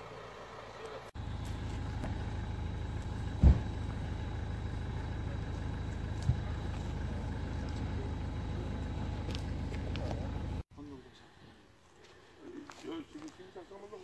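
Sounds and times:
vehicle engine idling: 0.0 - 10.7
dull thumps: 3.3 - 3.8.

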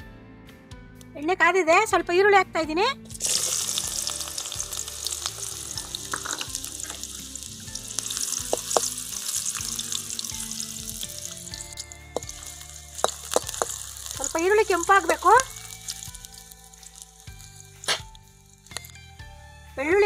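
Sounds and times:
onion sizzling in hot oil: 3.1 - 19.0
spatula tapping and scraping pan: 12.2 - 13.8.

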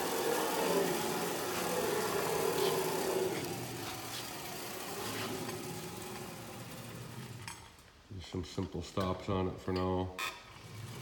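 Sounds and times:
carriage rolling on rails: 0.0 - 7.8.

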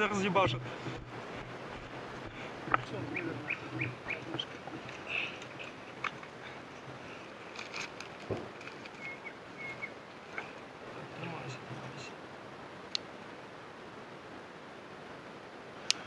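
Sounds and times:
gear clicking and rustling: 0.0 - 10.6
small birds chirping: 0.0 - 12.1.

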